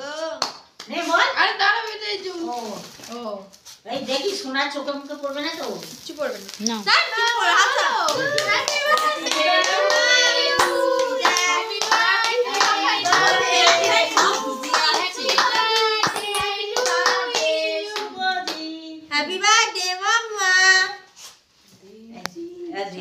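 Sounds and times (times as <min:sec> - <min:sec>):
voices singing together: 0:07.1 - 0:19.1
hands clapping: 0:07.2 - 0:18.7.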